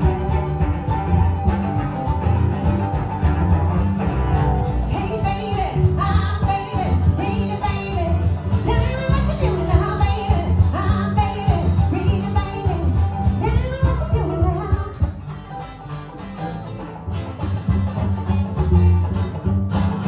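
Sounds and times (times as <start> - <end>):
acoustic guitar: 0.0 - 20.0
cello: 0.0 - 20.0
strummed mandolin: 0.0 - 20.0
upright bass: 0.0 - 20.0
woman singing: 4.8 - 15.2.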